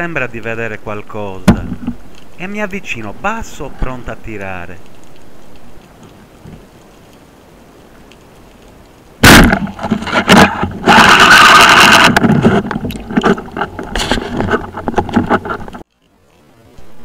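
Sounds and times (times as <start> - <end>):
speargun firing underwater: 9.2 - 9.8
rattling scraping and knocking: 9.5 - 15.8.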